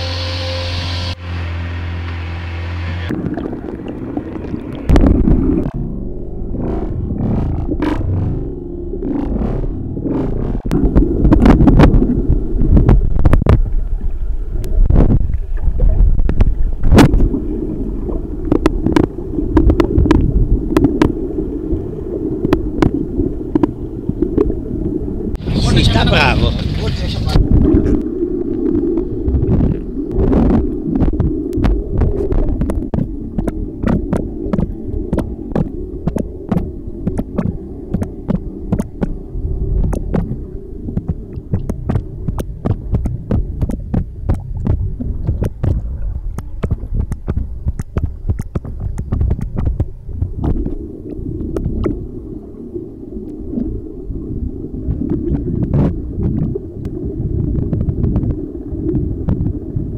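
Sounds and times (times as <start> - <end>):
underwater rumble of moving water: 1.0 - 59.9
sharp underwater clicks: 18.4 - 21.2, 22.4 - 24.5, 27.8 - 39.2, 39.8 - 52.0.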